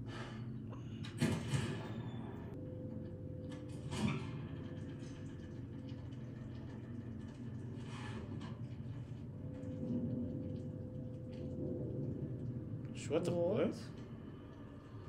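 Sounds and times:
low rumbling drone: 0.0s - 15.0s.

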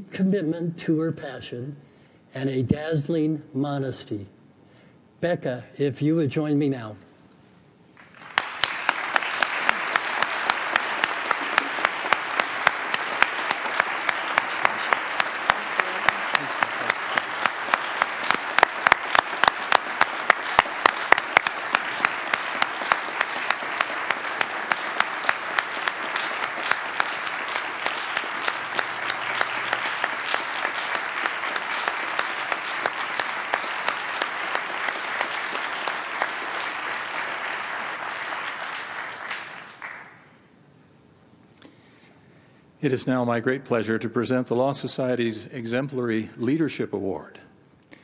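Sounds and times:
audience applauding: 8.0s - 40.4s.

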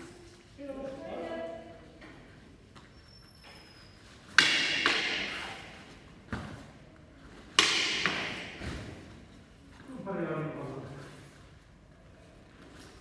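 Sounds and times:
plastic blades clacking in hall: 4.3s - 5.7s, 7.5s - 8.6s.

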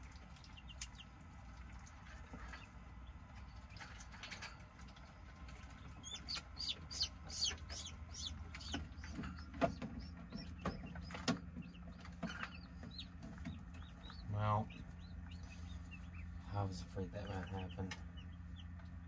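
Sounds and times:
chicks peeping: 0.0s - 19.0s.

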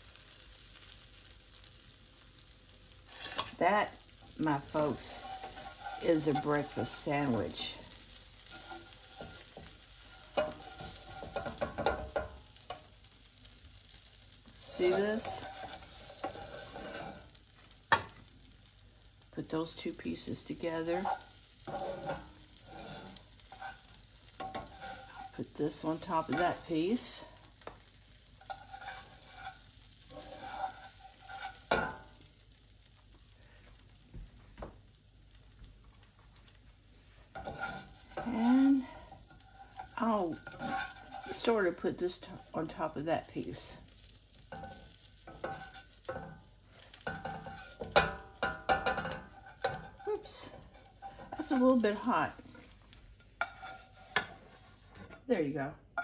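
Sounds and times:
egg sizzling: 0.0s - 55.1s
spatula scraping a frying pan: 0.1s - 32.8s, 36.0s - 55.3s.

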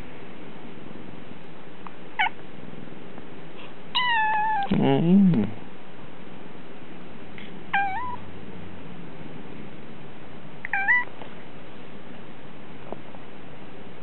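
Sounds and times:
cat meowing: 4.0s - 4.7s, 7.7s - 8.2s, 10.6s - 11.1s.

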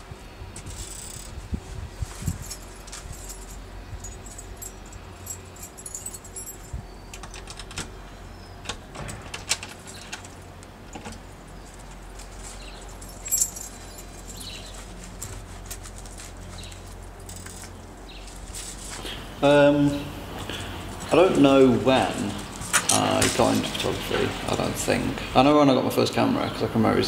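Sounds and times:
low background hum: 0.0s - 27.0s
keys jangling in a door lock: 2.5s - 7.9s, 8.6s - 10.4s, 12.6s - 14.7s.

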